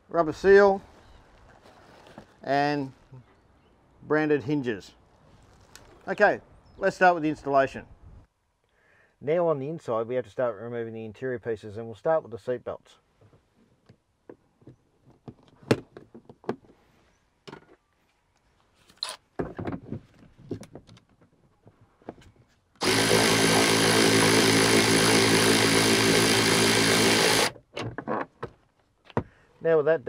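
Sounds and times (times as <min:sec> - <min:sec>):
cordless power tool motor whirring: 0:22.8 - 0:27.6.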